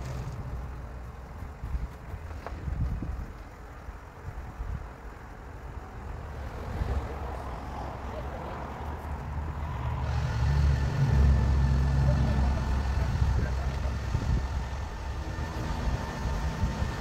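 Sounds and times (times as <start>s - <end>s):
truck engine running: 8.1s - 17.0s.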